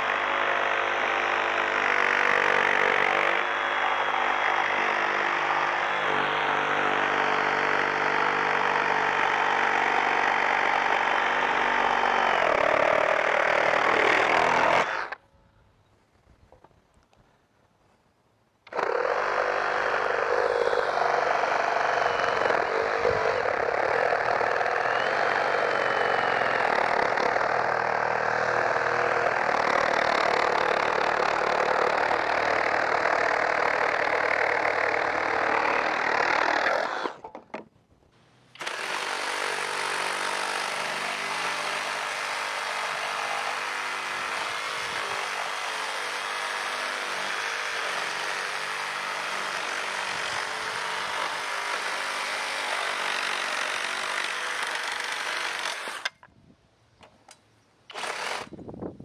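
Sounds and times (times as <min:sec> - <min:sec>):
reciprocating saw cutting wood: 0:00.0 - 0:15.2, 0:18.7 - 0:37.4, 0:38.6 - 0:56.2, 0:57.9 - 0:58.6.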